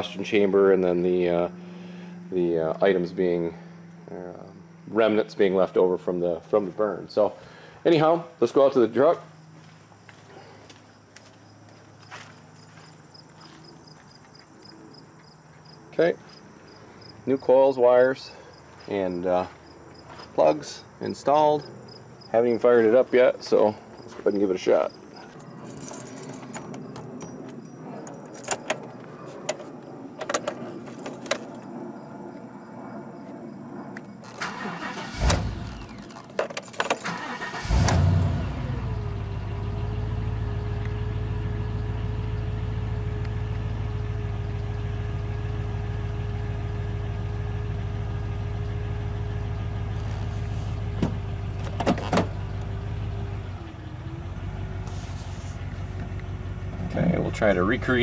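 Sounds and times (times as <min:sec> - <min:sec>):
keys jangling and clicking: 0:25.2 - 0:31.7, 0:36.0 - 0:37.7
truck engine cranking and idling: 0:34.2 - 0:58.0.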